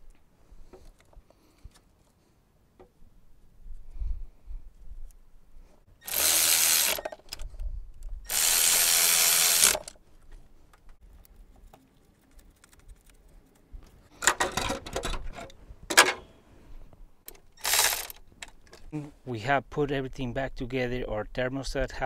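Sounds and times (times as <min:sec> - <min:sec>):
electric ratchet running: 0:06.0 - 0:07.2, 0:08.3 - 0:09.9, 0:17.6 - 0:18.1.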